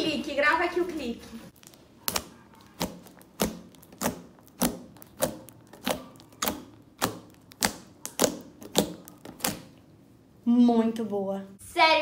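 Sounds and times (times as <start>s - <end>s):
slime clicking pops: 1.6s - 9.8s.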